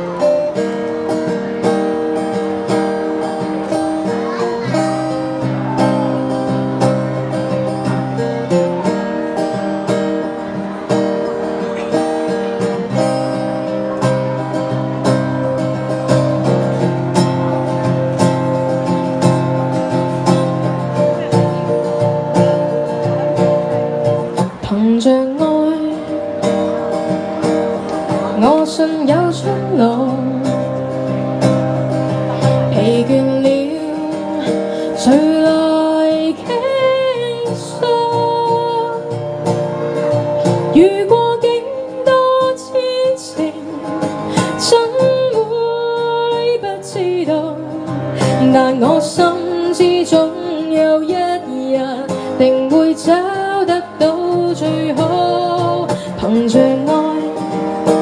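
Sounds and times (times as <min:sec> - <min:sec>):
acoustic guitar: 0:00.0 - 0:58.0
woman singing: 0:24.6 - 0:26.4, 0:28.3 - 0:30.9, 0:32.5 - 0:39.2, 0:40.6 - 0:58.0.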